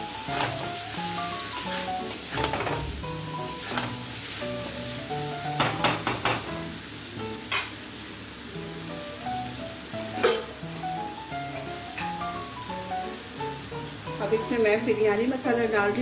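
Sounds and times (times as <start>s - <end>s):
food sizzling in a pan: 0.0s - 16.0s
metal ladle scraping pan: 3.4s - 4.1s.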